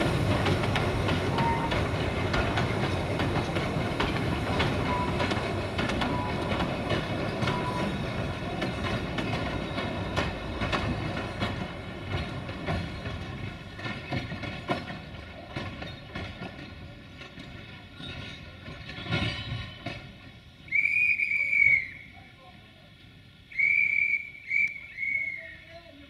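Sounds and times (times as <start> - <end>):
train wheels knocking over rail joints: 0.0 - 20.8
steam whistle blasts: 20.7 - 22.1, 23.5 - 25.6.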